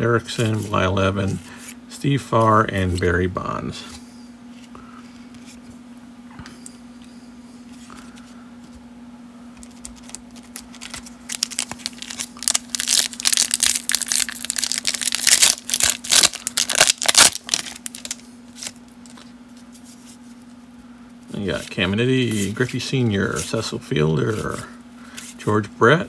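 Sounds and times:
foil wrapper crinkling and tearing: 0:09.6 - 0:19.3.

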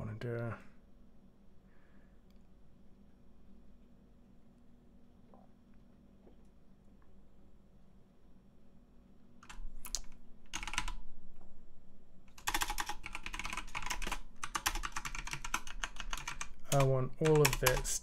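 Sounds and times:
faint steady hum: 0:00.0 - 0:18.0
typing on a computer keyboard: 0:09.4 - 0:11.0, 0:12.3 - 0:18.0.

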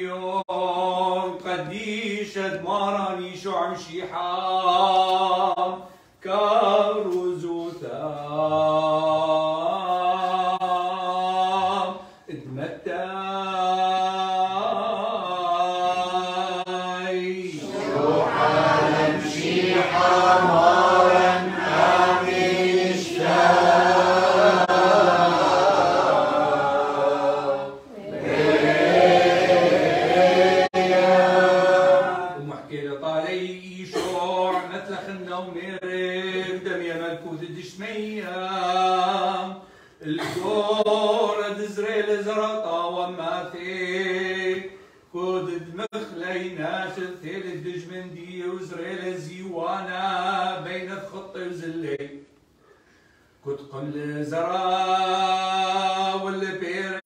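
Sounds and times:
man chanting: 0:00.0 - 0:23.1, 0:31.0 - 0:52.2, 0:53.5 - 0:57.0
voices singing together: 0:13.6 - 0:37.2.

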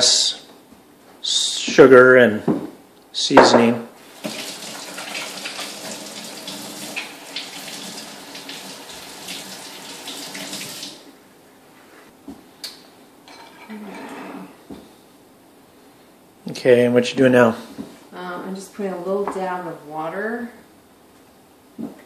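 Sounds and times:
faucet running into sink: 0:04.0 - 0:11.0.

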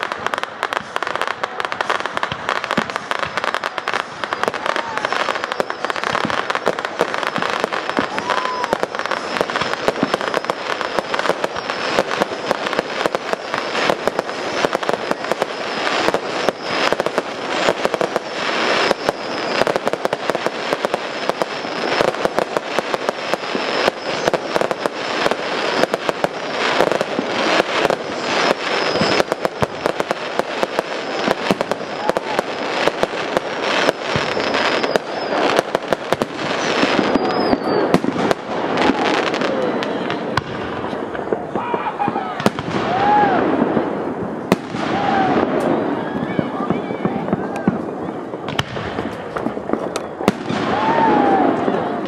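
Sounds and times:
fireworks bangs and crackling: 0:00.0 - 0:52.0.

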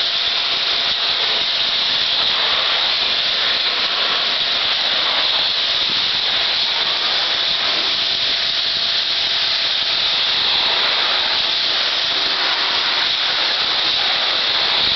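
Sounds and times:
pressure washer jet hissing: 0:00.0 - 0:14.9.

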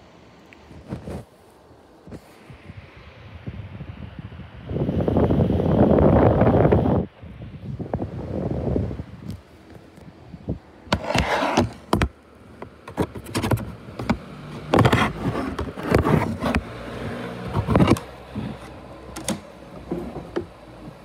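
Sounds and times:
handling noise on microphone: 0:00.6 - 0:02.5, 0:09.2 - 0:21.0.

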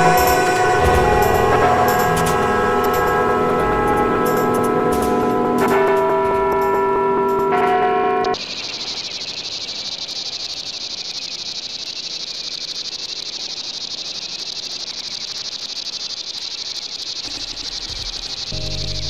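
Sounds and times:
music: 0:00.0 - 0:08.4, 0:18.5 - 0:19.0
shrill insect chorus: 0:00.0 - 0:19.0.

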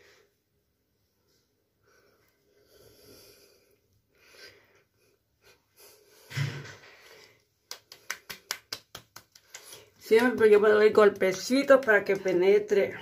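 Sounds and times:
soft breathing: 0:01.1 - 0:07.6
fingertips tapping skin: 0:07.6 - 0:12.7.

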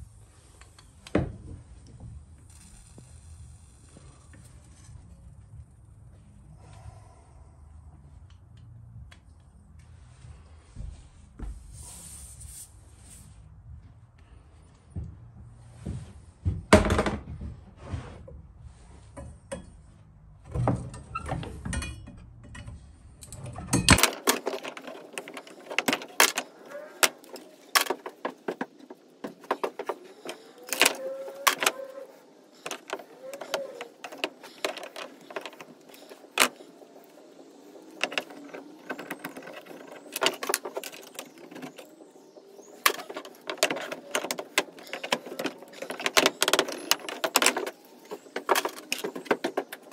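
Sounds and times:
metal parts clinking on wooden floor: 0:21.6 - 0:42.0, 0:42.6 - 0:49.9.

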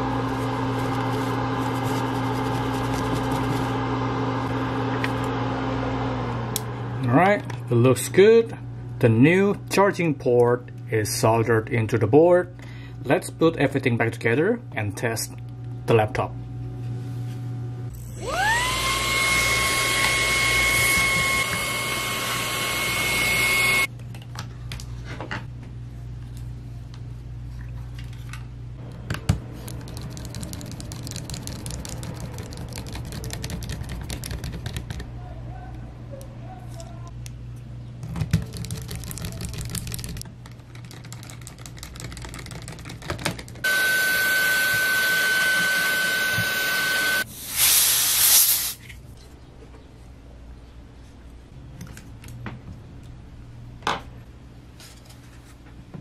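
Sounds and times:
electric air blower whine: 0:00.0 - 0:07.9, 0:17.9 - 0:23.9, 0:43.6 - 0:48.8
hiss with high whistle: 0:43.7 - 0:48.8.

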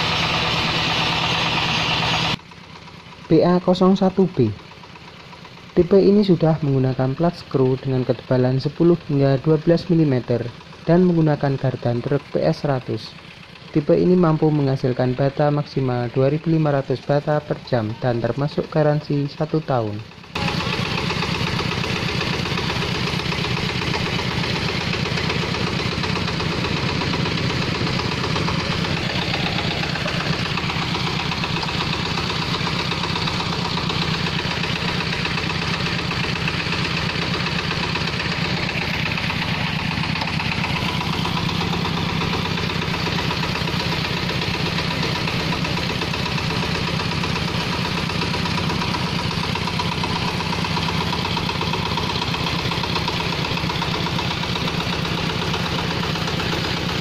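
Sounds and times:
diesel engine chugging: 0:00.0 - 0:57.0.

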